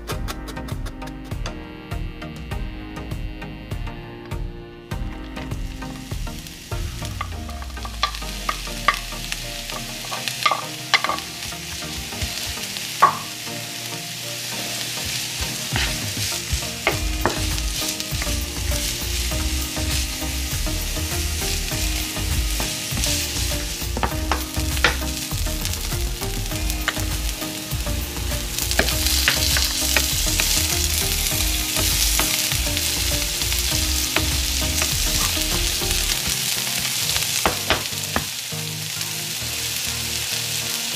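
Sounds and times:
onion sizzling in hot oil: 5.4 - 40.9
spatula scraping a pan: 14.4 - 25.2.

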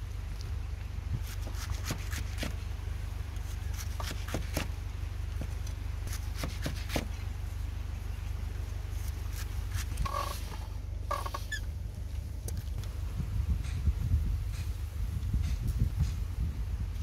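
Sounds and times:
low hum: 0.0 - 17.0
cleaver cutting on wooden block: 1.2 - 2.6, 3.7 - 4.7, 6.1 - 7.1.

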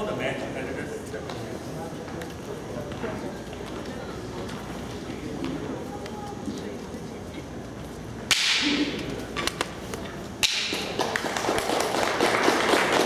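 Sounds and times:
sharp cracks: 8.3 - 9.7, 10.4 - 11.4
audience applauding: 10.7 - 13.0.

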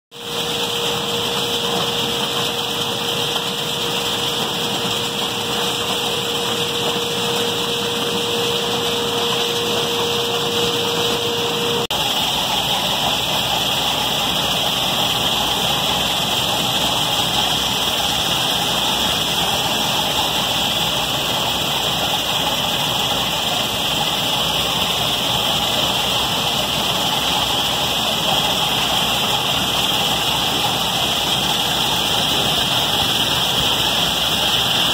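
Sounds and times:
machine hum: 0.2 - 34.9.

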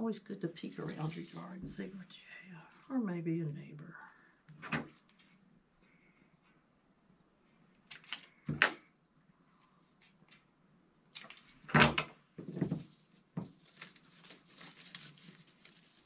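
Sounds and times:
stems and leaves rustling: 0.6 - 3.0, 12.4 - 16.0.

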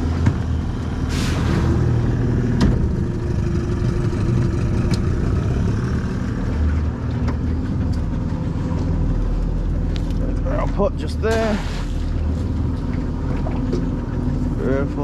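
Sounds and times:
outboard motor running: 2.2 - 15.0.

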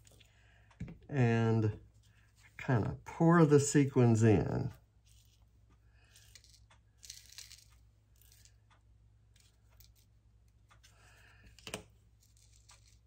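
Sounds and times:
sequins pattering onto paper: 6.1 - 8.6.

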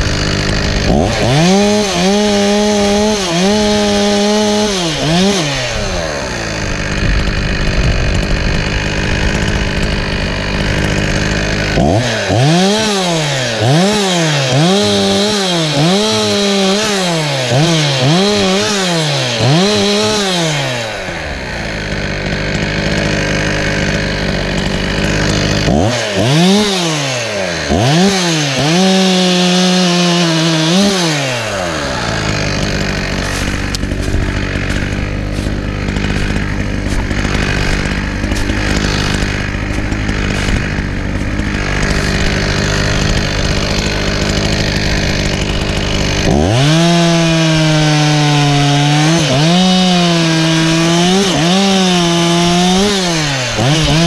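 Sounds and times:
chainsaw engine revving: 0.0 - 54.0.

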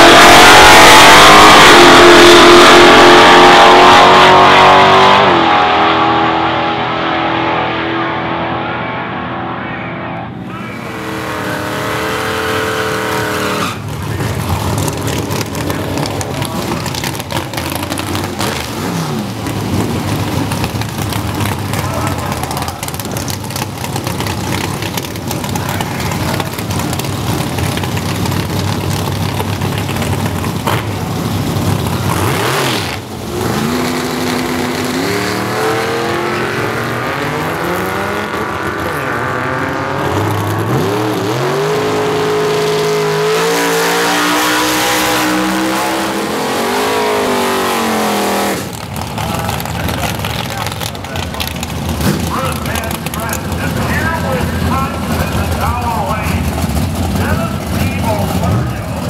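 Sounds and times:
pickup engine revving hard: 0.0 - 8.6, 10.8 - 14.0, 31.6 - 48.8.

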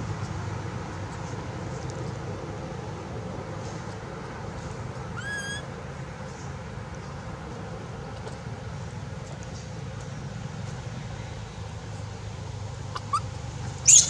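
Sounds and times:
baby monkey high-pitched call: 5.1 - 5.7, 12.9 - 14.0.

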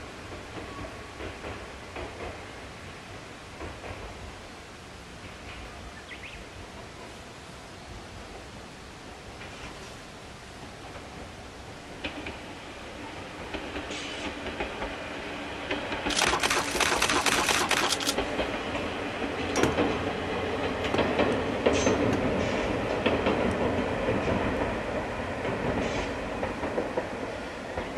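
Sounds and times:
diesel train engine drone: 0.0 - 27.9
wheels clattering over rail joints: 15.7 - 24.8.

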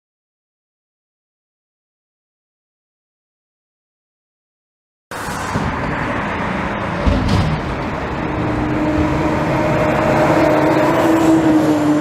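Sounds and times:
diesel engine running and revving: 5.4 - 12.0
low thump: 7.0 - 7.8.

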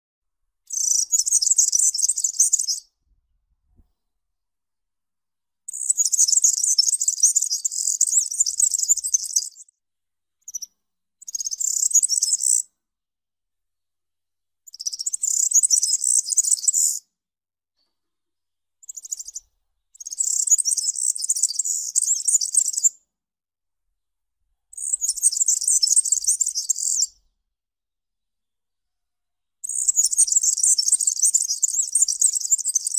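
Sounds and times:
bird singing rapid high song: 0.7 - 2.9, 5.7 - 9.7, 10.4 - 12.6, 14.7 - 17.0, 18.8 - 22.9, 24.7 - 27.3, 29.6 - 32.9.

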